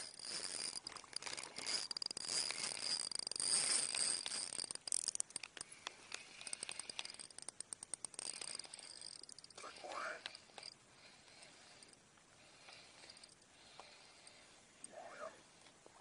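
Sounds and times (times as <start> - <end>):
fishing reel clicking and rattling: 0.0 - 12.0.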